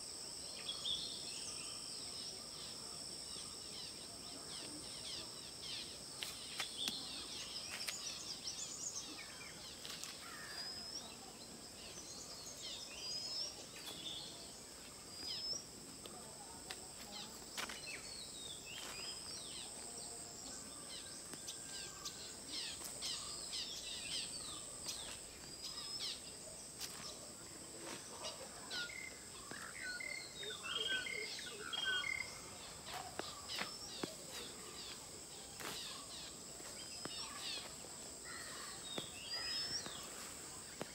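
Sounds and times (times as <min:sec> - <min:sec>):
birds chirping and calling: 0:28.2 - 0:35.0.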